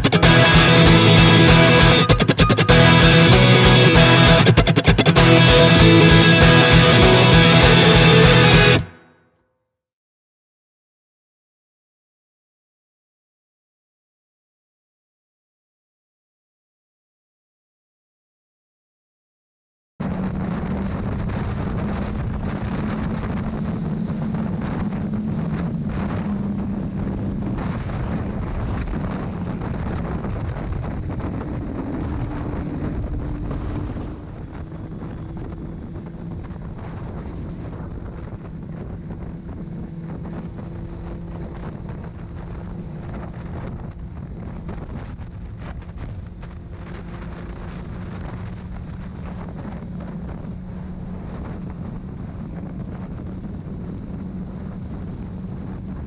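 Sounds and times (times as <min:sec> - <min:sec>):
motorcycle engine running: 0:00.0 - 0:09.0, 0:20.1 - 0:56.0
wind rushing over microphone: 0:20.0 - 0:56.0.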